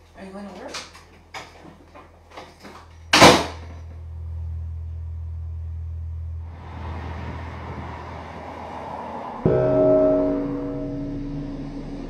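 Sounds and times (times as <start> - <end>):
steady low hum: 3.6 - 8.4, 9.3 - 12.0.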